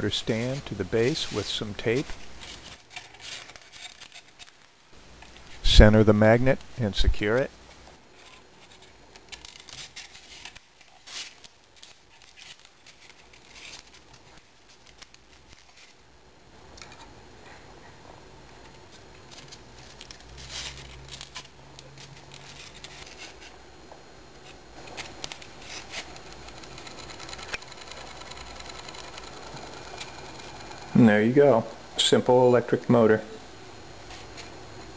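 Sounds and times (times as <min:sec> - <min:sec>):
hands handling tape and paper: 0:00.3 - 0:05.6, 0:07.7 - 0:16.0, 0:18.5 - 0:23.6, 0:24.4 - 0:30.9
small electric motor spinning: 0:24.9 - 0:31.1.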